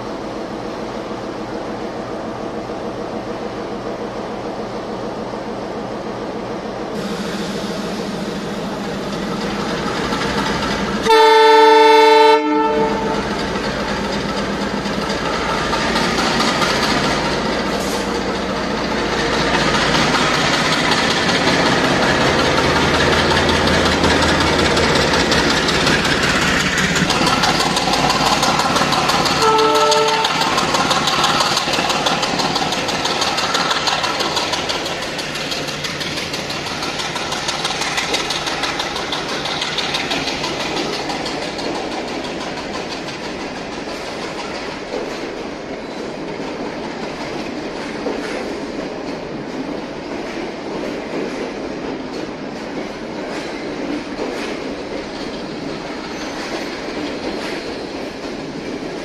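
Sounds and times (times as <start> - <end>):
train running past: 0.0 - 59.0
train horn blast: 11.0 - 13.3, 29.4 - 30.5.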